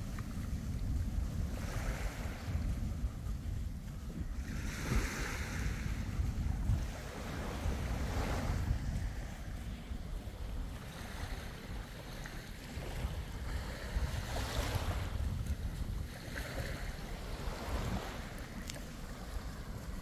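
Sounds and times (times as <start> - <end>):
sea waves washing in: 0.0 - 20.0
wind rumble on microphone: 0.0 - 20.0.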